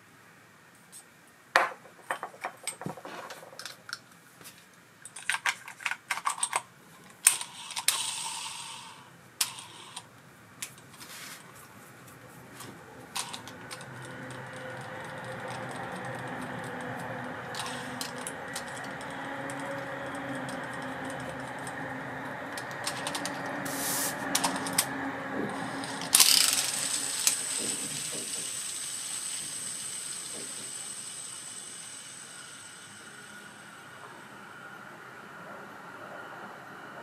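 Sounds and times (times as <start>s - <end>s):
high steady whine: 7.2s - 37.0s
fishing reel whirring: 7.3s - 10.1s, 13.1s - 33.6s.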